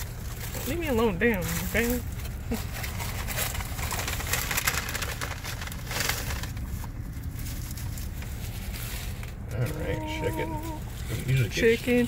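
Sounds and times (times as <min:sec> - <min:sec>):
paper bag and foil rustling: 0:00.0 - 0:12.0
steady low hum: 0:00.0 - 0:12.0.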